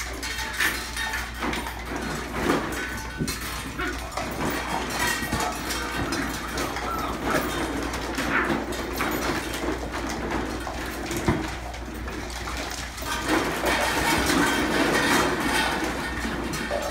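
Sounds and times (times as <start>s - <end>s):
puppies vocalising: 2.9s - 9.8s.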